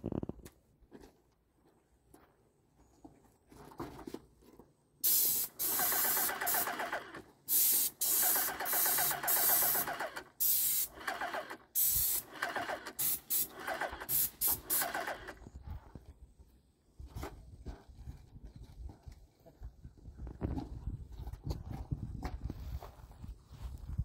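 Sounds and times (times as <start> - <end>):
paint spray gun hissing: 5.0 - 15.2.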